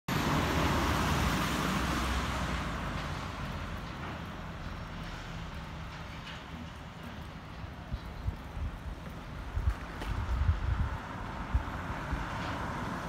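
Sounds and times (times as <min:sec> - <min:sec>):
car driving past on wet road: 0:00.1 - 0:03.9, 0:09.9 - 0:13.0.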